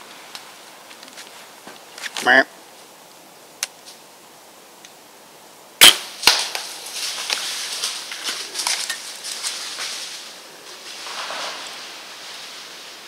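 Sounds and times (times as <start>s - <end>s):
arrow striking deer: 5.8s - 6.8s
deer crashing through brush: 5.8s - 13.0s.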